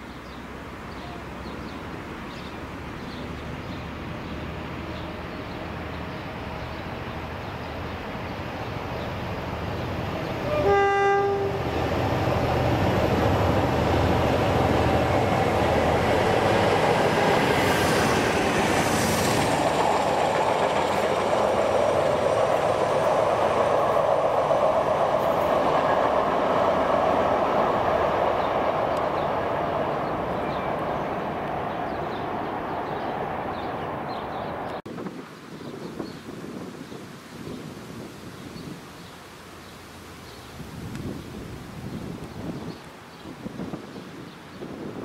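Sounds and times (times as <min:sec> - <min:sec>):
coaches rolling over rails: 0:04.0 - 0:34.8
locomotive horn blast: 0:10.4 - 0:11.8.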